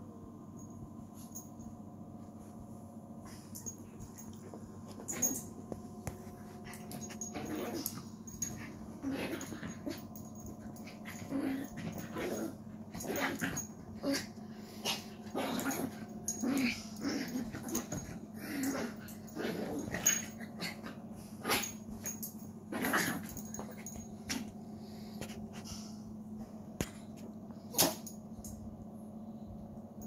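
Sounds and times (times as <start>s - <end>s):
small dog growling: 6.6s - 21.8s, 22.7s - 24.5s.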